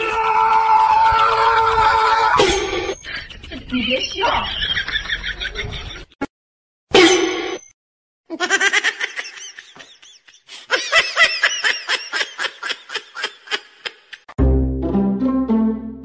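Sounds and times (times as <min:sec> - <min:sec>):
high-pitched giggling: 0:08.3 - 0:14.3
music: 0:14.4 - 0:16.0.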